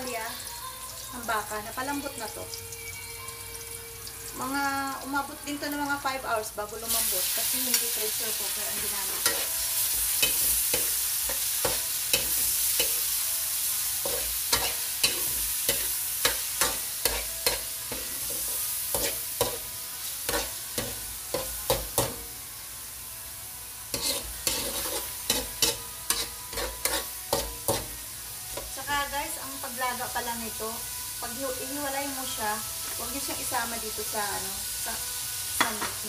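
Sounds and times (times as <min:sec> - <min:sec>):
frying sizzle: 0:00.0 - 0:36.0
metal spatula scraping a wok: 0:07.6 - 0:13.2, 0:14.0 - 0:22.2, 0:23.9 - 0:28.7.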